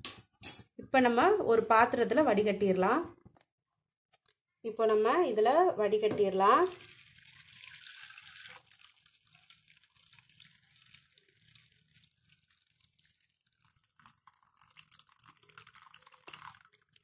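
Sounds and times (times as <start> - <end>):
hot water pouring through strainer: 6.6 - 17.0.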